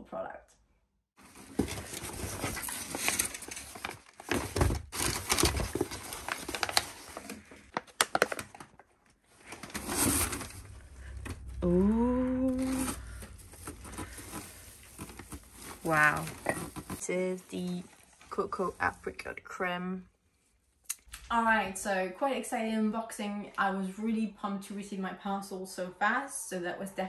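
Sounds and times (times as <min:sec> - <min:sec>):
packing paper rustling: 0:01.2 - 0:11.2, 0:12.6 - 0:18.7.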